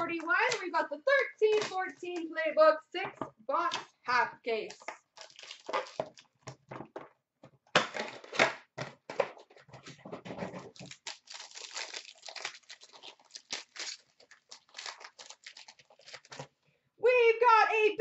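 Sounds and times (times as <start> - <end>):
packaging rustling: 5.0 - 6.7, 9.3 - 16.6
foil pack crinkling and tearing: 5.2 - 6.4, 10.6 - 16.6.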